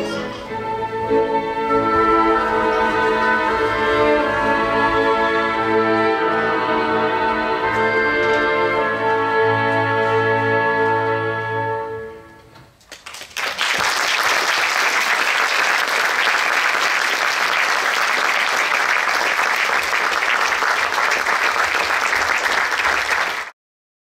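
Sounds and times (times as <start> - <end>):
orchestral ballet music: 0.0 - 12.8
audience applause: 12.9 - 23.6.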